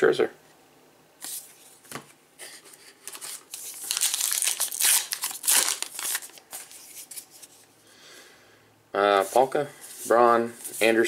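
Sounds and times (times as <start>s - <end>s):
foil wrapper tearing and crinkling: 3.1s - 6.8s.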